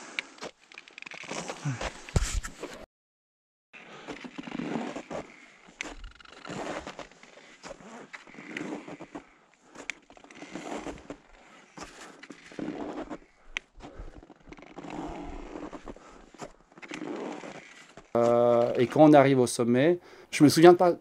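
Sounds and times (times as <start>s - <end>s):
boots crunching in snow: 4.0s - 19.0s.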